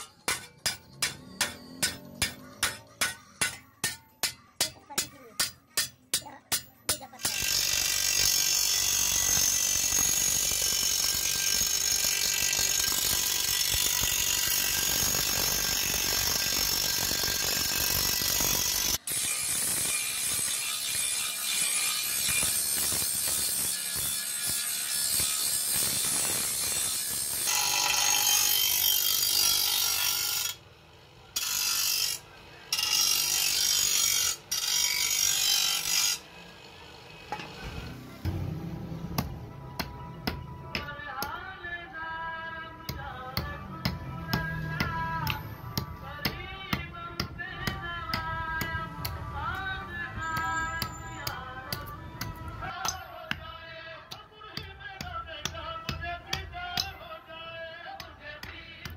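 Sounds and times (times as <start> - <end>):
hammer striking steel on anvil: 0.0 - 8.3, 39.2 - 41.4, 42.9 - 49.6, 50.2 - 53.5
grinding wheel on steel: 7.0 - 39.3.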